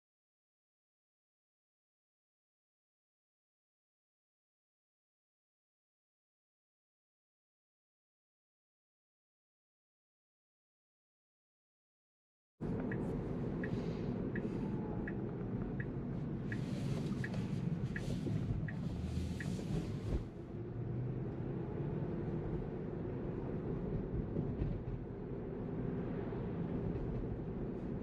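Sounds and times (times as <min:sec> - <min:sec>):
turn signal clicking: 0:12.6 - 0:20.2
road and tyre rumble: 0:12.6 - 0:28.0.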